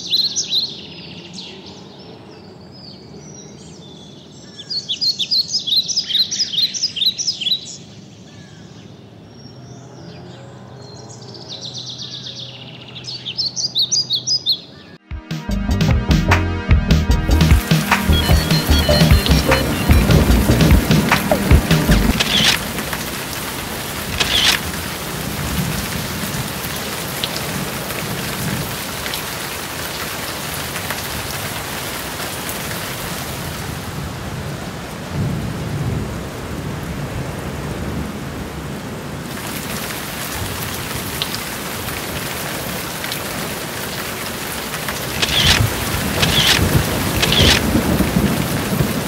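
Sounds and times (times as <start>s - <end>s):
rain hiss: 17.6s - 49.0s
thunder rolling: 17.8s - 25.9s, 45.0s - 49.0s.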